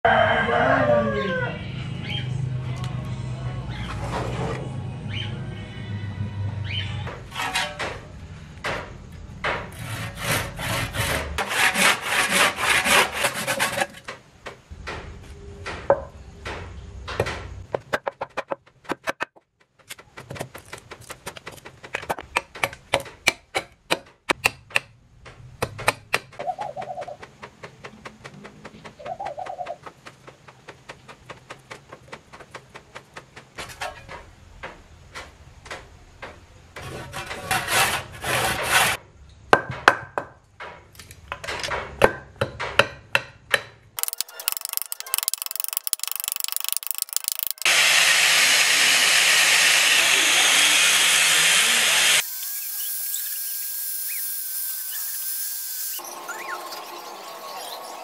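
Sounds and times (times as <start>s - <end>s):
hand saw cutting wood: 9.7s - 14.0s, 36.8s - 39.0s, 44.0s - 56.0s.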